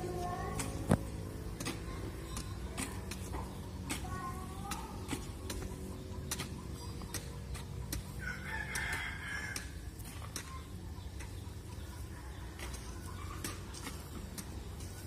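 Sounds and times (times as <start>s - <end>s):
rooster crowing: 8.2s - 9.8s.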